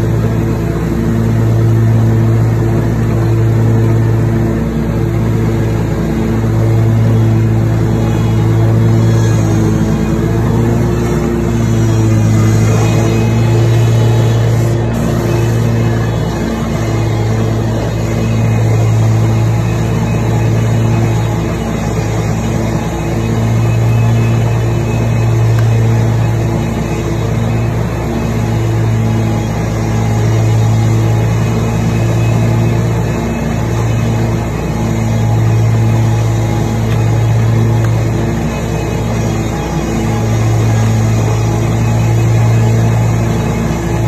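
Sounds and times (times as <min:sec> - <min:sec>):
riding lawn mower engine: 0:00.0 - 0:44.0.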